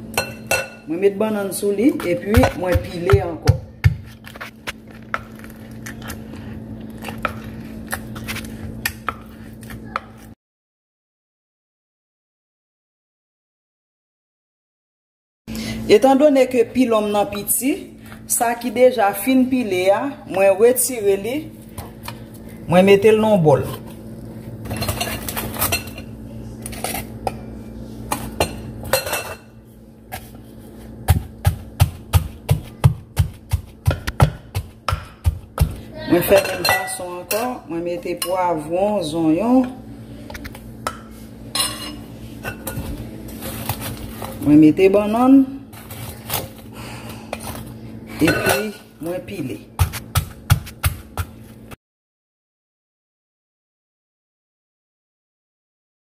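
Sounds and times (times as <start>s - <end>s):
wooden pestle pounding in mortar: 2.0s - 4.1s, 31.1s - 35.8s, 49.8s - 51.3s.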